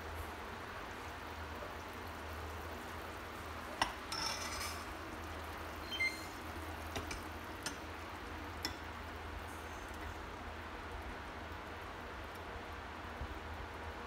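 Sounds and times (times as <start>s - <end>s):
metallic ring: 4.1s - 4.9s.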